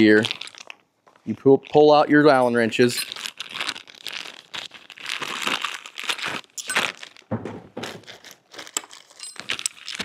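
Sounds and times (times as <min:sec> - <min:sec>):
plastic bag crinkling: 0:00.0 - 0:10.0
dull knock: 0:07.3 - 0:07.9.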